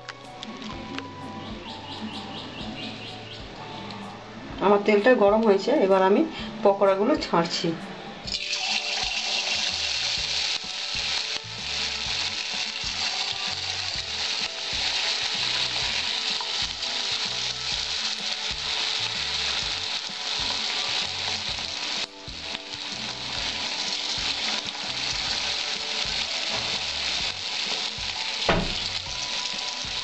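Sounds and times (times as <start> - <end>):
oil sizzling while deep-frying: 8.2 - 30.0.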